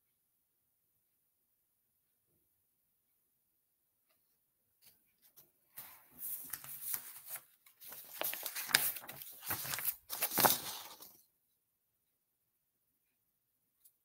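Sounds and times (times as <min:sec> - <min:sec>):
paper cards rustling: 0:04.8 - 0:11.2.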